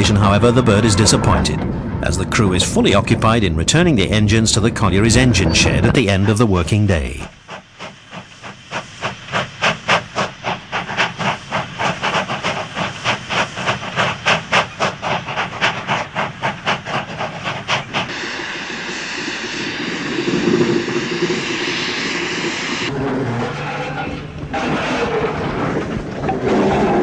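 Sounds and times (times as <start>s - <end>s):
steady hiss of steam: 6.0s - 22.9s
steam locomotive exhaust chuffing: 7.2s - 25.1s.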